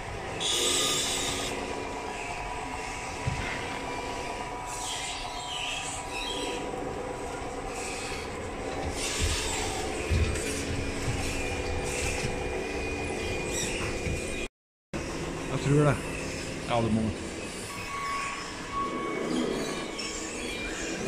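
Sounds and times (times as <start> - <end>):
toy truck motors whining: 0.4 - 1.6.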